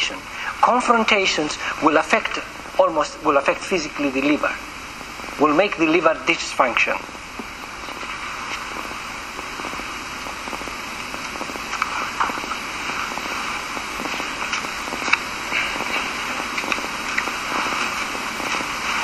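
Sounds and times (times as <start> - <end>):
steady background hiss: 0.0 - 19.0
faint clicks and rustles: 6.8 - 19.0.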